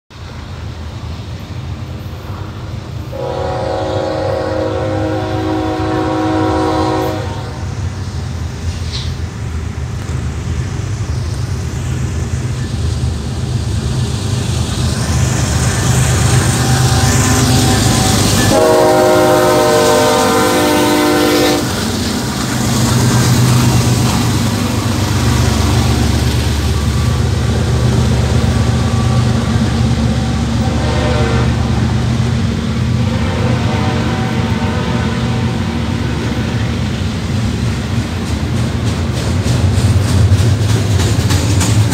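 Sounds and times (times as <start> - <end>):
train rumbling past: 0.1 - 41.9
locomotive horn: 3.1 - 7.7, 16.3 - 21.8, 30.2 - 31.9, 33.0 - 36.6.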